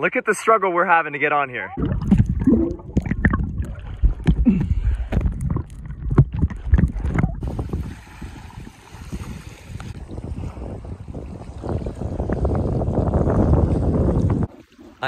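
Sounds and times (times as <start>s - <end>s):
underwater splashing and sloshing: 1.7s - 15.0s
wind hiss on microphone: 7.4s - 14.5s.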